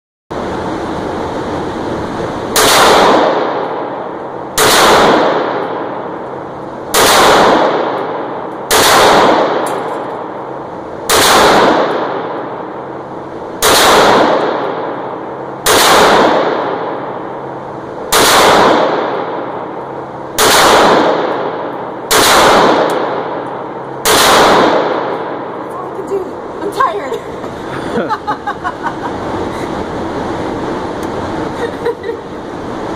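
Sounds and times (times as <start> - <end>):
pistol shots echoing indoors: 2.6 - 3.7, 4.6 - 5.8, 6.9 - 10.2, 11.1 - 12.4, 13.6 - 15.0, 15.6 - 17.0, 18.1 - 19.5, 20.4 - 25.4.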